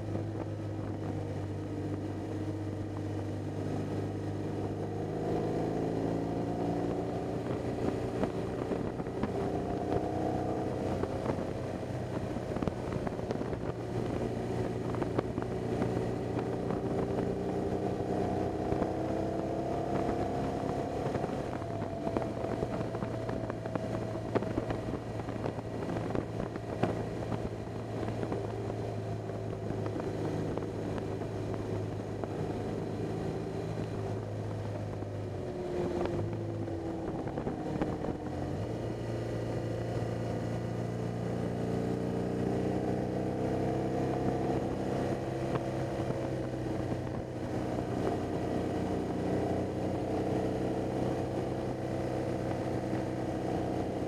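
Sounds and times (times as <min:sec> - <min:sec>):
motorcycle engine running: 0:00.0 - 0:54.0
wind noise on microphone: 0:00.0 - 0:54.0.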